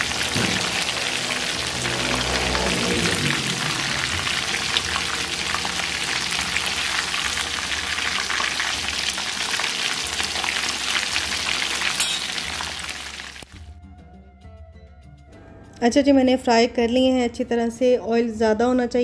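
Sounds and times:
chicken deep-frying in oil: 0:00.0 - 0:13.5.

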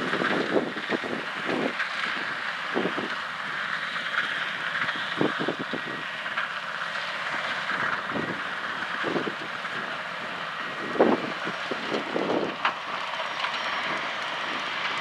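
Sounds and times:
wind buffeting microphone: 0:00.0 - 0:03.2, 0:04.8 - 0:06.1, 0:07.7 - 0:10.0, 0:10.6 - 0:13.2
tractor diesel engine under load: 0:00.0 - 0:15.0.

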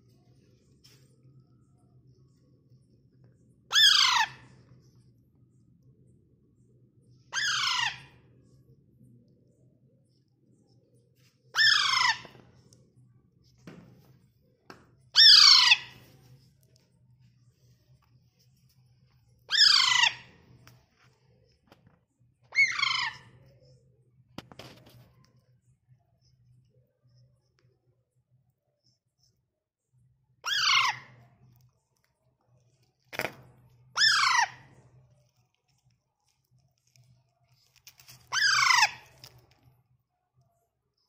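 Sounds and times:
parakeet squawks: 0:03.7 - 0:04.6, 0:07.3 - 0:08.2, 0:11.5 - 0:12.5, 0:15.1 - 0:16.1, 0:19.5 - 0:20.4, 0:22.5 - 0:23.4, 0:30.4 - 0:31.2, 0:33.9 - 0:34.7, 0:38.3 - 0:39.3.

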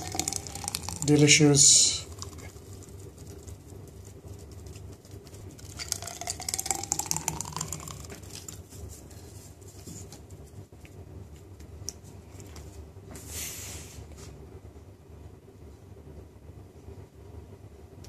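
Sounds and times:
smoothie pouring over ice: 0:00.0 - 0:03.4, 0:05.5 - 0:08.7.

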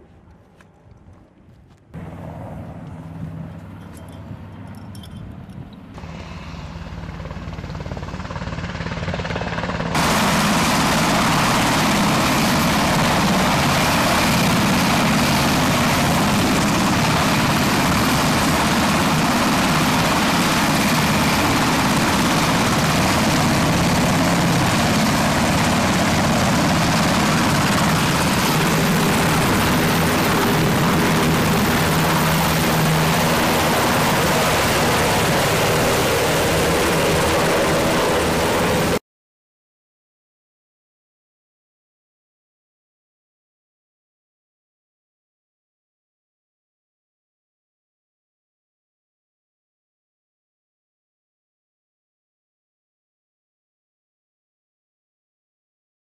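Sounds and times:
helicopter running close by: 0:01.9 - 0:39.0.

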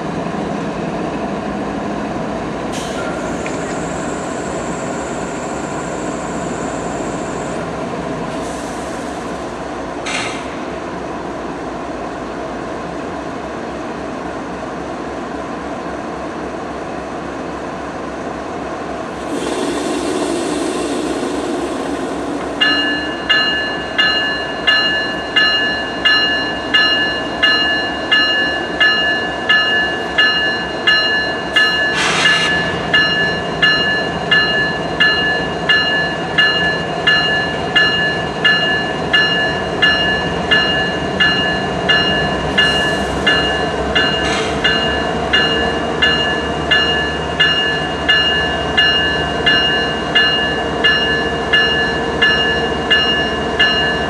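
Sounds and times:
diesel locomotives idling: 0:17.6 - 0:54.0
locomotive engines revving: 0:19.1 - 0:23.4
locomotive bell ringing: 0:20.9 - 0:54.0.

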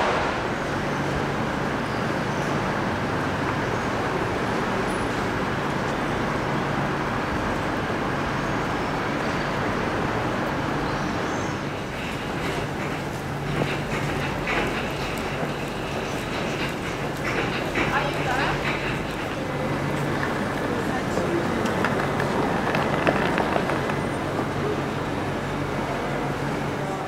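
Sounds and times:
railway station background noise: 0:00.0 - 0:27.0.

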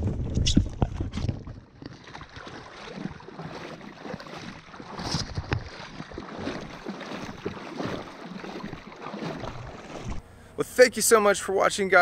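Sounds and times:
sharp splashes and knocks: 0:00.0 - 0:10.2
paddle strokes splashing: 0:00.6 - 0:10.3
water washing along board: 0:00.8 - 0:10.2.

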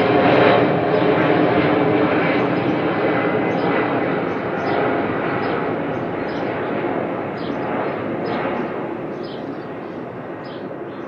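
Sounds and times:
jet passing overhead: 0:00.0 - 0:11.0
bird chirps: 0:09.1 - 0:11.0.

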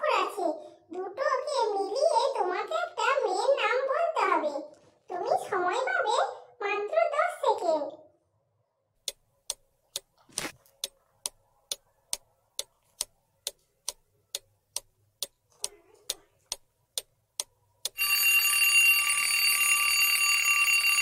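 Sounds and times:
clock ticking: 0:09.0 - 0:18.1
alarm clock bell ringing: 0:17.9 - 0:21.0.

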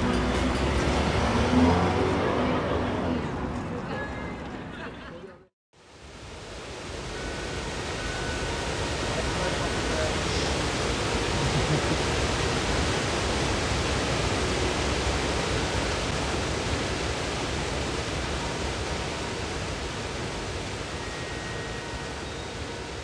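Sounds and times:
water rushing over a weir: 0:05.8 - 0:23.0.

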